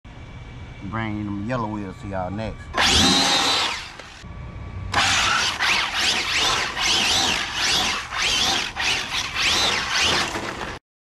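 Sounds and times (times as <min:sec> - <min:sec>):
tyres spinning and squealing: 0:02.7 - 0:04.2, 0:04.9 - 0:10.8
rc car motor whine: 0:02.8 - 0:04.2, 0:04.9 - 0:10.8.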